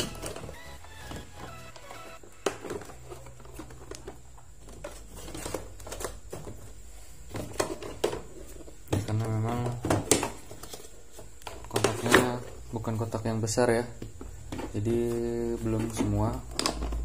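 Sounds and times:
plastic tools clicking and knocking: 15.7 - 17.0.

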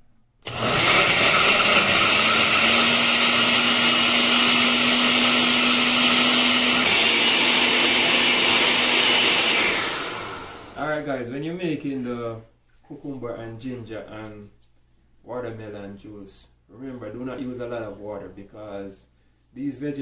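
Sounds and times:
blender motor running: 0.4 - 10.8.

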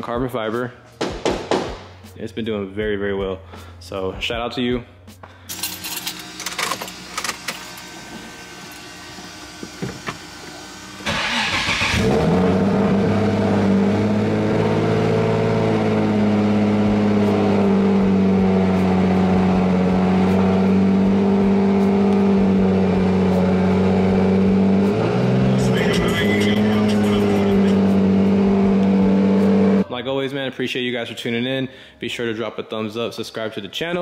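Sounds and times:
car engine starting and idling: 5.5 - 29.8.

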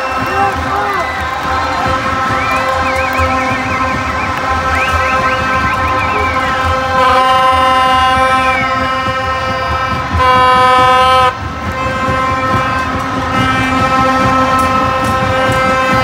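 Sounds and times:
crowd noise: 0.0 - 16.0
plastic horns blowing low tones: 0.0 - 16.0.

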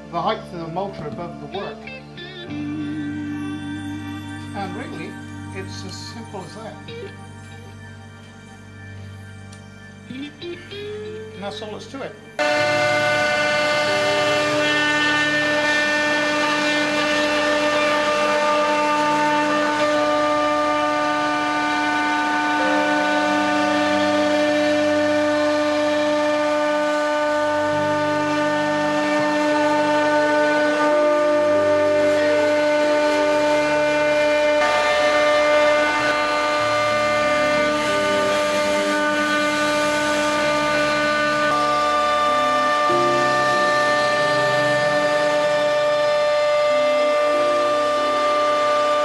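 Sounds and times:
low motor tones: 0.0 - 49.0
router spindle whining: 3.7 - 49.0
router bit cutting wood: 12.4 - 49.0.

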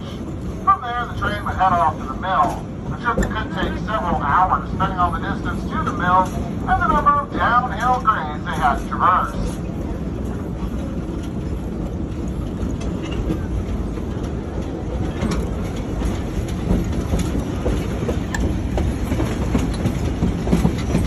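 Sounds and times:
train wheels rumbling: 0.0 - 21.0
sharp clacks on track: 12.1 - 21.0.

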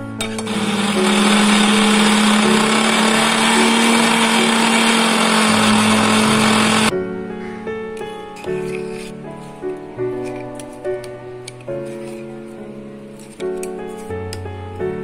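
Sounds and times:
mixer grinder motor whirring: 0.2 - 6.9.

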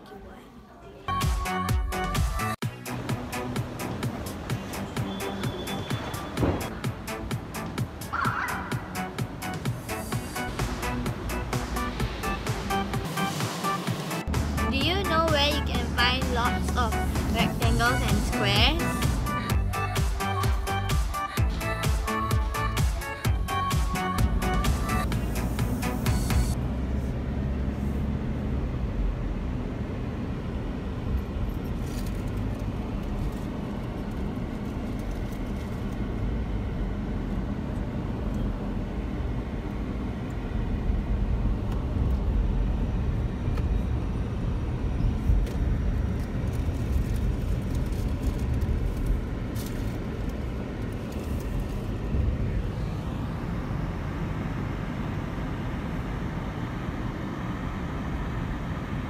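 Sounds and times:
car driving rumble: 23.4 - 59.0.

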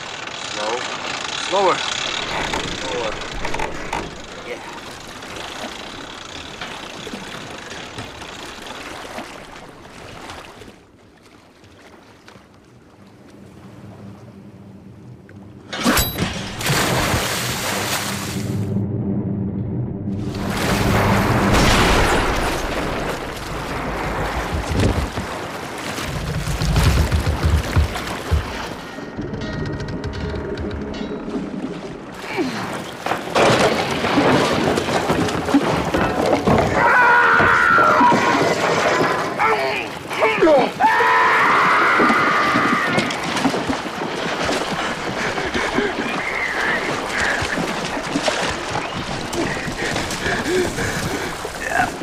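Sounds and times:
water splashing over boat: 0.0 - 13.8, 16.4 - 18.5, 20.2 - 28.9, 31.3 - 52.0
knocks and thuds: 26.0 - 28.8.

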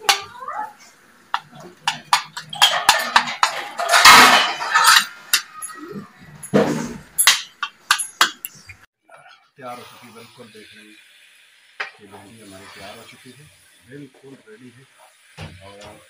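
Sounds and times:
metal spoon scraping ceramic plate: 1.9 - 5.8.

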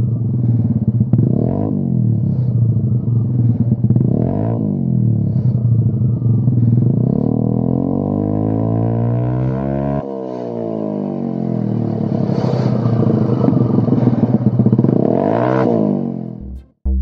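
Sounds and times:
scooter engine idling: 0.0 - 7.7
throttle blips: 16.4 - 17.0.

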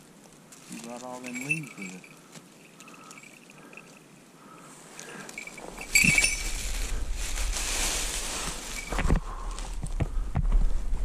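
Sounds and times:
rustling and crunching of leaves: 0.0 - 3.1, 4.7 - 10.0.

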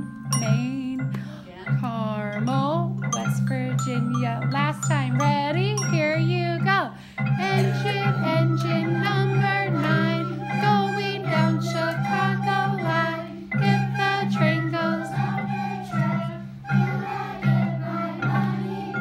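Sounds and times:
recorders playing: 0.0 - 19.0
wooden xylophones: 0.0 - 19.0
children singing together: 7.3 - 19.0.

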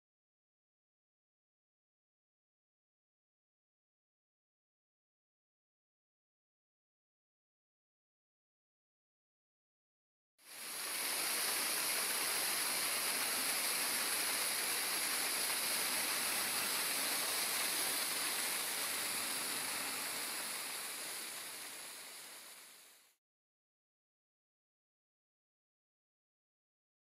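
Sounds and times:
waterfall rushing: 10.5 - 23.2.

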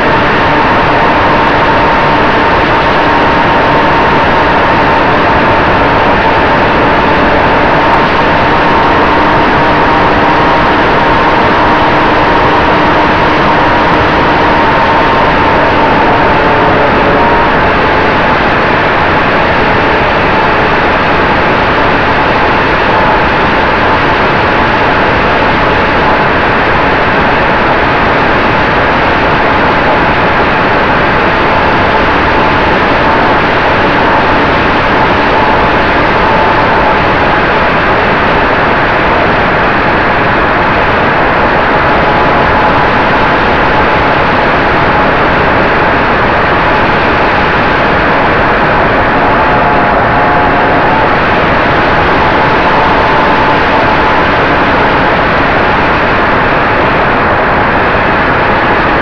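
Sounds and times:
model plane motor whine: 0.0 - 26.3
rush of air over camera: 41.0 - 59.0.

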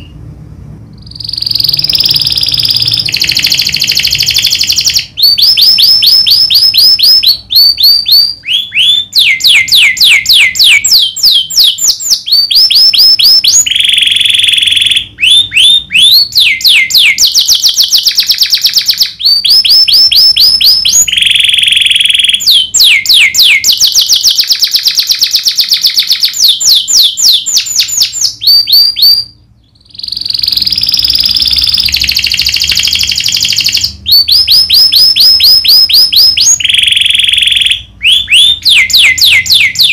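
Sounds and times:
canary singing in rolling trills: 0.0 - 39.9.

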